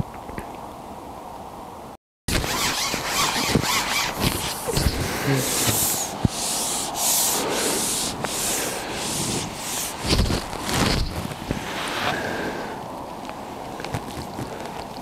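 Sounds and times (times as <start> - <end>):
rubbing or scraping strokes: 2.3 - 12.4.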